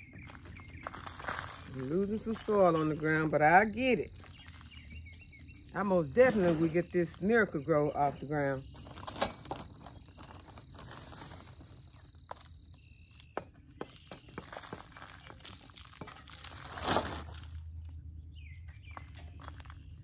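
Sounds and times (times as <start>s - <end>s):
plastic bag rustling: 0.0s - 5.7s, 8.8s - 12.6s, 14.3s - 17.8s
soil pressed into a pot: 0.0s - 8.0s, 8.8s - 18.0s.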